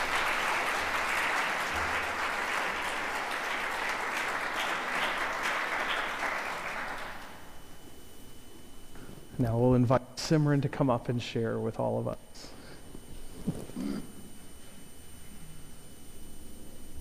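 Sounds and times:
congregation applauding: 0:00.0 - 0:07.6.

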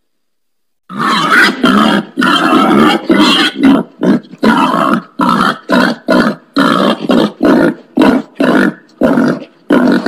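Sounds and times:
wild pig grunting: 0:00.9 - 0:10.0.

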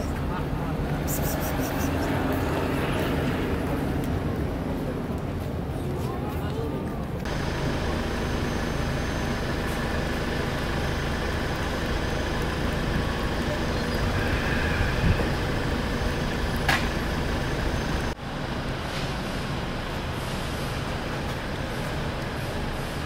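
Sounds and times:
road traffic: 0:00.0 - 0:23.0.

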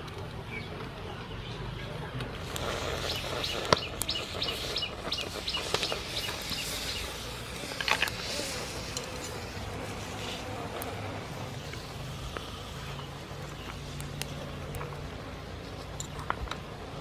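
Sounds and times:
sharp clicks: 0:02.2 - 0:07.0, 0:13.6 - 0:14.9
bird chirping rapidly: 0:02.5 - 0:07.5.

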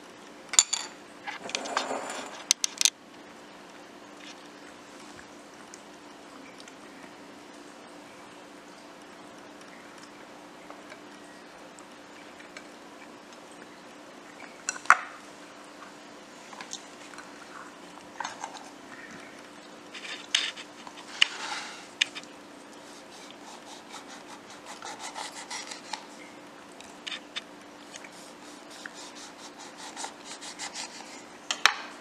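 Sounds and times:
faint steady hum: 0:00.0 - 0:32.0
rubbing and scraping on a platter: 0:01.4 - 0:02.5, 0:19.9 - 0:26.2, 0:27.9 - 0:31.3.

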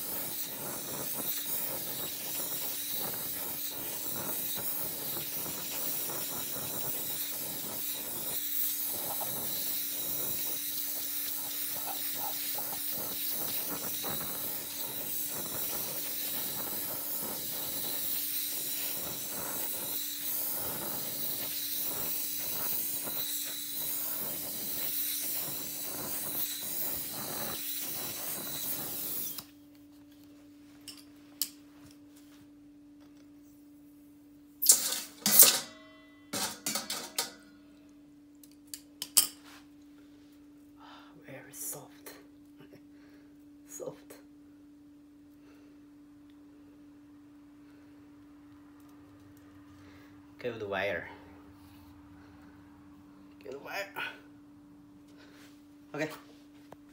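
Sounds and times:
torch flame hissing: 0:00.0 - 0:29.6, 0:34.6 - 0:35.5.

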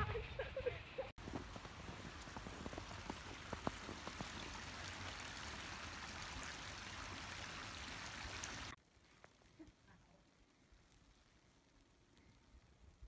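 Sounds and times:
footsteps crunching snow: 0:01.2 - 0:06.5
creek flowing: 0:01.2 - 0:09.4.

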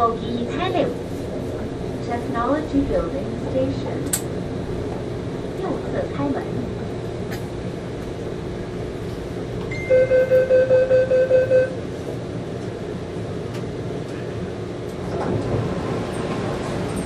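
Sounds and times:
train hum: 0:00.0 - 0:17.0
train door warning beeping: 0:09.7 - 0:11.8.

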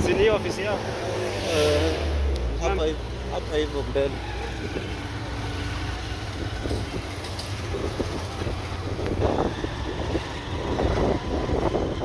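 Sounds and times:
motorcycle engine rumbling: 0:00.0 - 0:12.0
wind buffeting microphone: 0:05.9 - 0:12.0.

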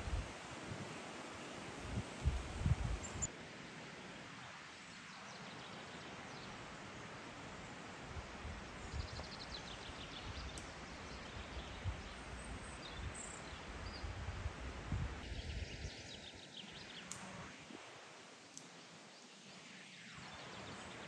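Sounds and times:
steady hiss: 0:12.2 - 0:21.0.

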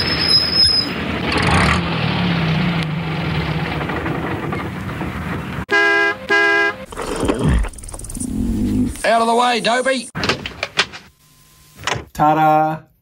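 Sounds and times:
vehicle engine rumble: 0:00.0 - 0:05.7
short horn honks: 0:05.7 - 0:06.9.

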